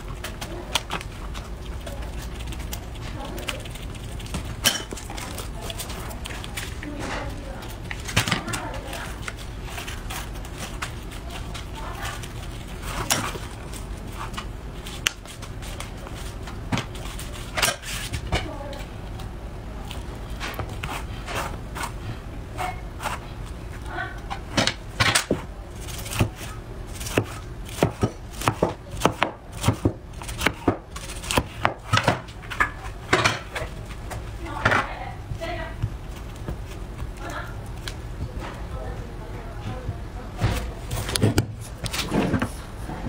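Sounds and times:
cleaver chopping sushi rice: 24.6s - 32.3s.

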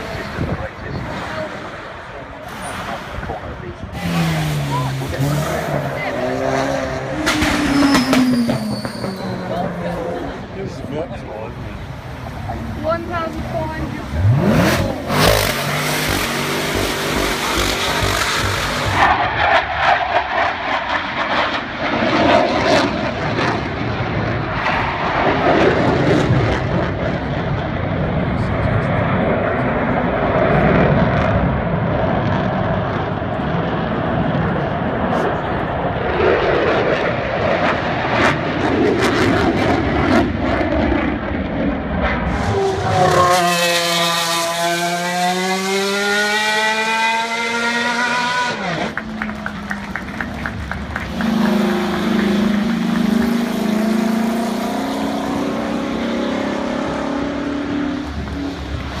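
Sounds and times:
racing car engine at high revs: 0.0s - 59.0s
fighter jet flying past: 17.5s - 56.1s.

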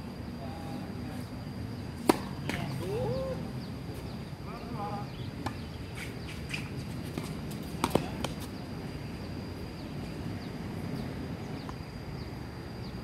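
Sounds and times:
birds chirping: 1.7s - 6.8s
tennis balls knocking: 2.0s - 2.9s, 7.1s - 8.5s.

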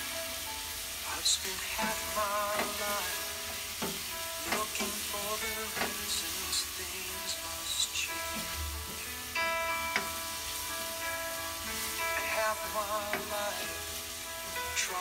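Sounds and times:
meat and vegetables sizzling in pot: 0.0s - 15.0s.

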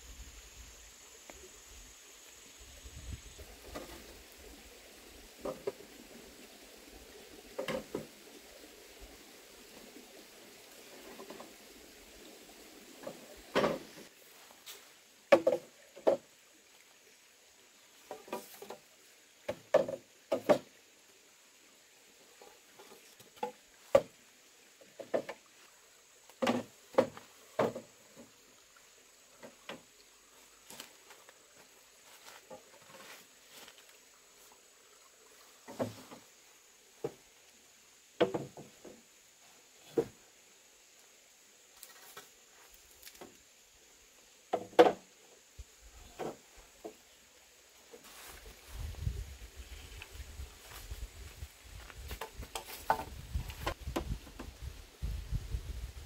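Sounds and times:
bamboo poles knocking: 7.6s - 8.1s, 15.3s - 16.2s, 18.1s - 18.8s, 19.4s - 20.7s, 23.2s - 24.1s, 24.8s - 25.4s, 26.4s - 27.9s, 38.2s - 39.0s, 44.5s - 45.1s, 52.1s - 54.5s.

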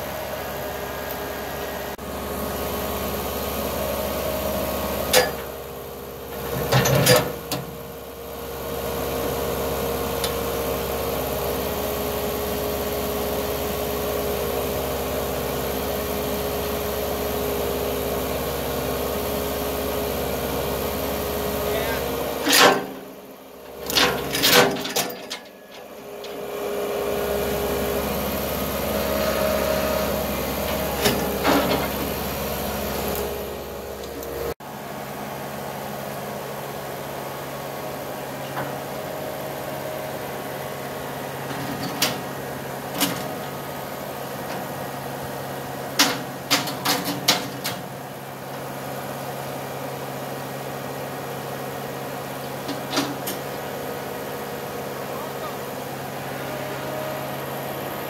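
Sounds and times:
skid steer engine running: 0.0s - 58.0s
metallic clanks of chain and bucket: 23.8s - 25.8s.

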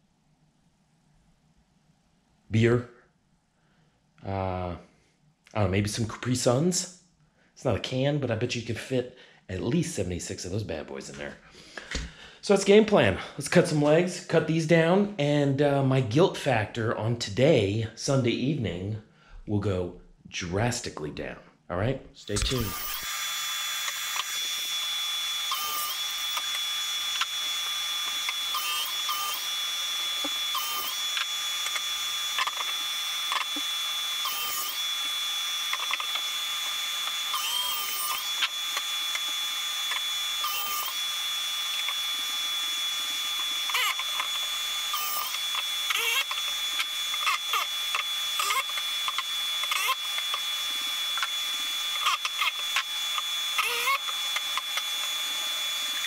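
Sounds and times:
miter saw motor whine: 22.2s - 56.0s.

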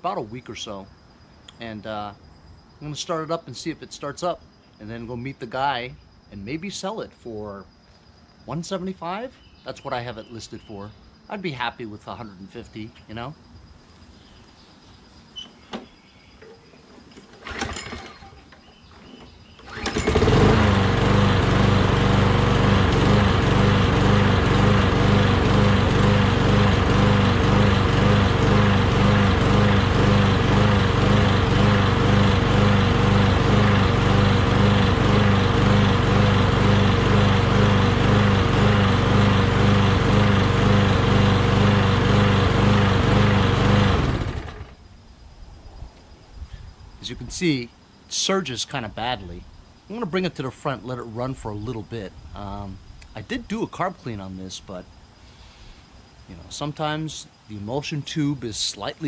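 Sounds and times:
lawn mower engine surging: 16.4s - 44.8s.

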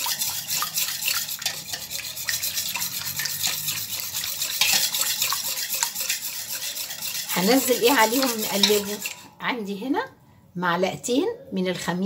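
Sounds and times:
wet swishing in mixing bowl: 0.0s - 9.4s
utensil scraping metal bowl: 0.0s - 9.7s.

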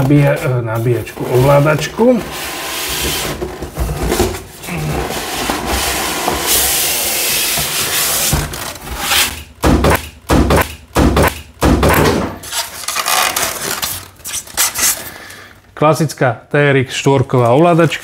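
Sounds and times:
cardboard and plastic rustling: 0.0s - 9.3s, 12.4s - 15.4s, 17.2s - 18.0s
styrofoam squeaking: 0.0s - 9.4s, 12.4s - 15.2s.

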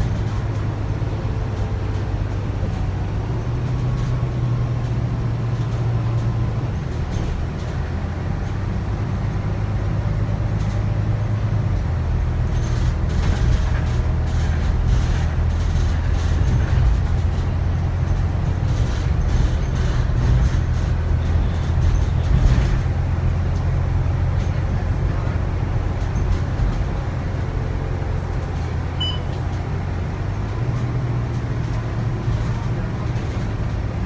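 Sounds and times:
bus engine drone: 0.0s - 34.0s
short high beep: 29.0s - 29.4s.

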